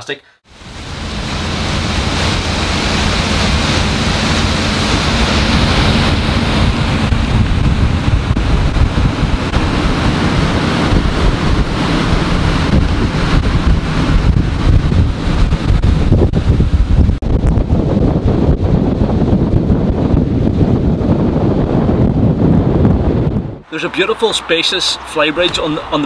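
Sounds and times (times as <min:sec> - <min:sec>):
water rushing along hull: 0:00.4 - 0:26.0
low diesel engine rumble: 0:00.5 - 0:17.1
wind buffeting microphone: 0:00.5 - 0:23.7.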